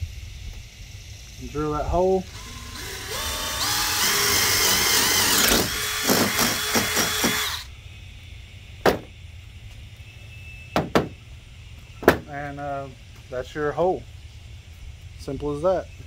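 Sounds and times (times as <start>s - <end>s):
drill boring through wood: 2.0s - 7.7s
sharp knock: 8.8s - 9.1s, 10.8s - 11.1s.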